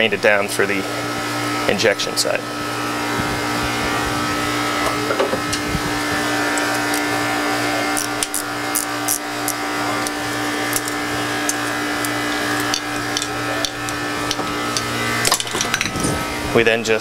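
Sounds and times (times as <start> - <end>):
machinery hum and drone: 0.0 - 17.0.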